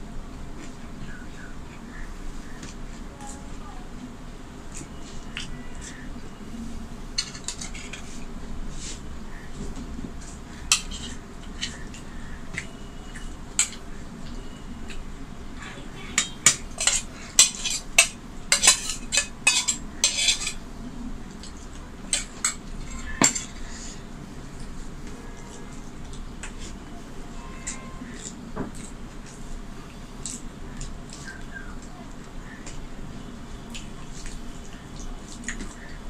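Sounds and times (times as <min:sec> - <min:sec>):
spoon clinking on steel bowls: 0:07.2 - 0:08.0, 0:10.7 - 0:11.8, 0:16.2 - 0:20.6, 0:22.1 - 0:23.6.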